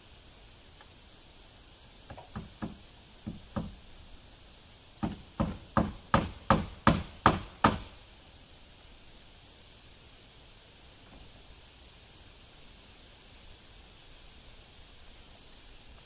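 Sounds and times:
hammer striking wood: 2.1 - 3.8, 5.0 - 8.0.

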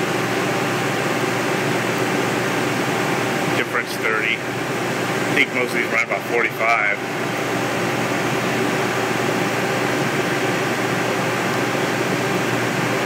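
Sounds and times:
boiler burner rushing: 0.0 - 13.0.

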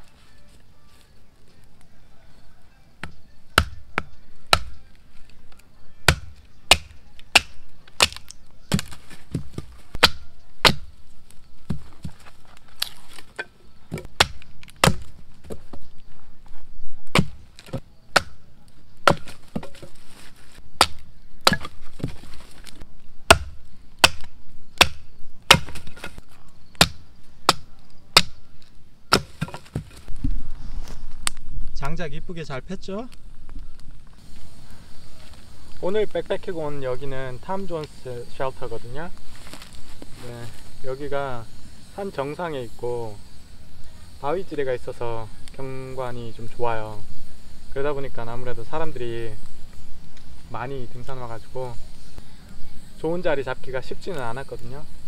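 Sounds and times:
firewood being split: 3.0 - 31.4, 39.1 - 40.7.

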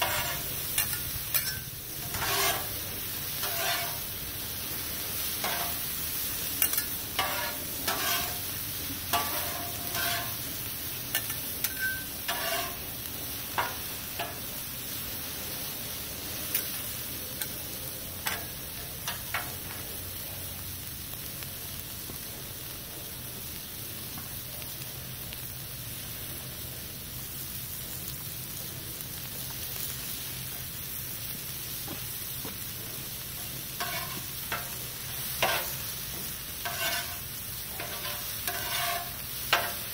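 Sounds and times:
metal spatulas scraping griddle: 0.0 - 4.1, 5.4 - 5.9, 6.6 - 8.5, 9.1 - 10.4, 11.1 - 12.9, 18.3 - 19.6, 33.8 - 39.9
vegetables sizzling on a griddle: 0.0 - 39.9.

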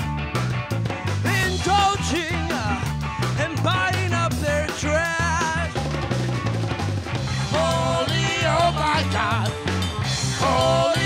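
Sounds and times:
drum kit: 0.0 - 11.0
electric bass line: 0.0 - 11.0
man singing into microphone: 1.2 - 5.8, 7.5 - 9.6, 10.4 - 11.0.

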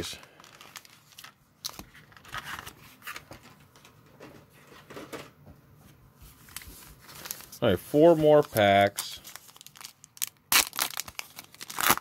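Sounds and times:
plastic packaging crinkling: 0.0 - 3.3, 6.4 - 12.0.

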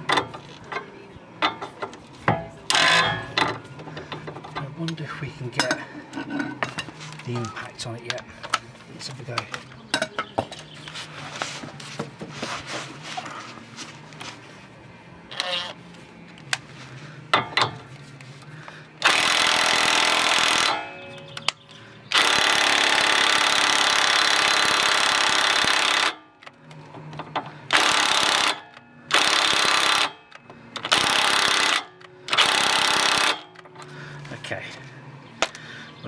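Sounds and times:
impact wrench hammering: 19.0 - 21.4, 27.2 - 33.7.

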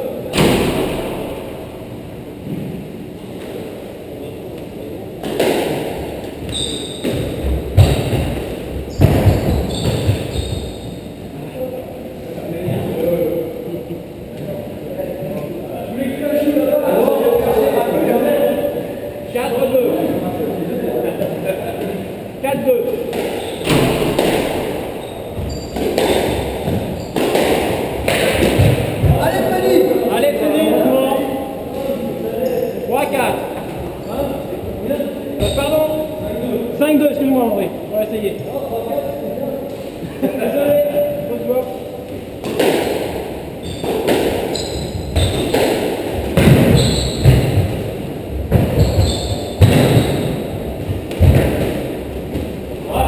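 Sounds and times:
squash ball smacking: 5.2 - 6.3, 23.1 - 29.3, 42.4 - 52.6
shoe squeaks: 6.5 - 8.0, 8.9 - 11.0, 23.3 - 23.8, 25.0 - 27.2, 32.4 - 32.8, 35.4 - 36.0, 43.6 - 45.6, 46.7 - 47.4, 48.6 - 50.6.

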